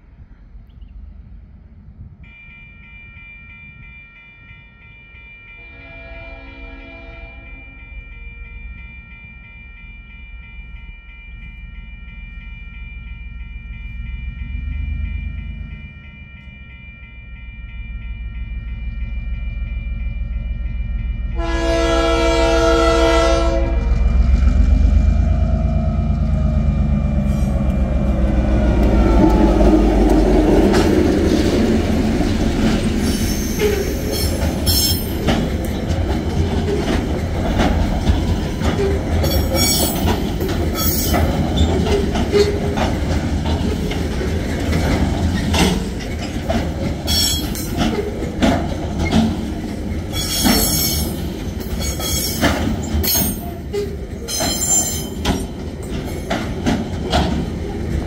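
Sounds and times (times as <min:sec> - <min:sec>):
level-crossing warning bell: 0:02.2 - 0:58.0
locomotive horn blast: 0:05.6 - 0:07.7, 0:21.4 - 0:24.3
locomotive rumble: 0:17.9 - 0:58.0
train wheel squeal: 0:32.9 - 0:35.5, 0:38.4 - 0:42.9, 0:45.2 - 0:48.3, 0:48.9 - 0:56.4.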